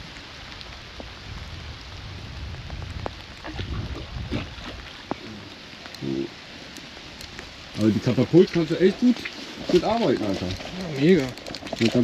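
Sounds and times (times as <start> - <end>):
wind rumble on microphone: 0.0 - 5.2
outdoor hiss: 0.0 - 11.4.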